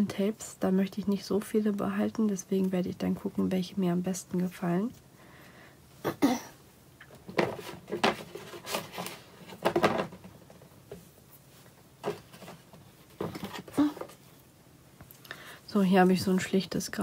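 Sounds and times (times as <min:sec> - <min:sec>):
tape rolls knocking: 0:07.2 - 0:10.7.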